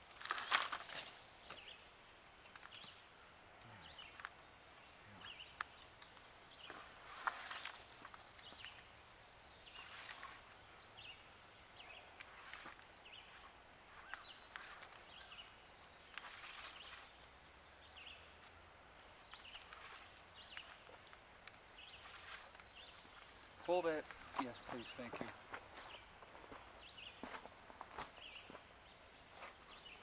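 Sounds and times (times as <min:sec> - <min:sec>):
rustles and scrapes of handling: 0:00.0 - 0:01.6, 0:06.6 - 0:08.7, 0:12.2 - 0:15.2, 0:16.1 - 0:17.2, 0:19.3 - 0:21.2, 0:21.8 - 0:23.4.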